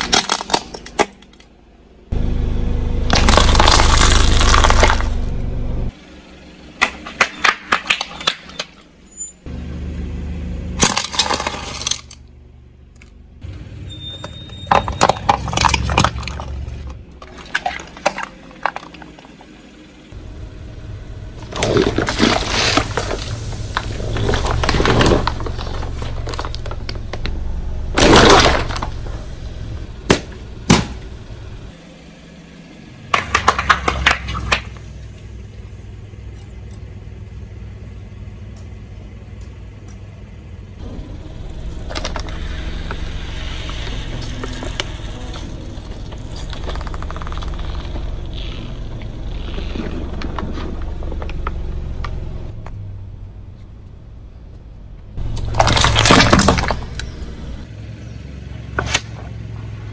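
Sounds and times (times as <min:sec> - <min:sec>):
car engine running low: 0:00.0 - 0:59.9
tyre crushing brittle objects: 0:03.1 - 0:05.2, 0:21.4 - 0:29.1, 0:41.8 - 0:52.2, 0:55.2 - 0:57.6.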